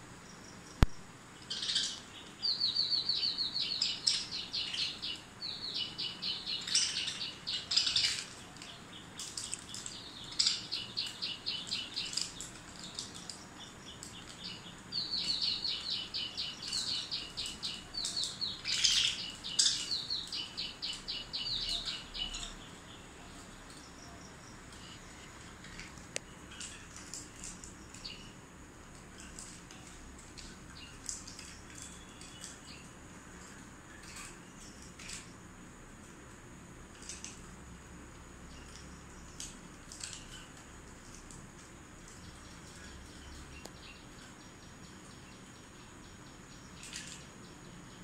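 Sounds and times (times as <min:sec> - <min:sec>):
budgerigars chirping: 0:14.2 - 0:22.6.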